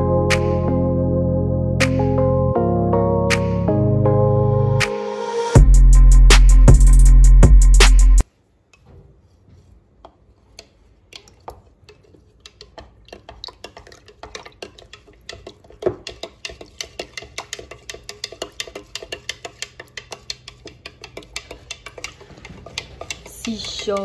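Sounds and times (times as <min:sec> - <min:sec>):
spoon tapping plastic beaker: 0:12.5 - 0:24.0.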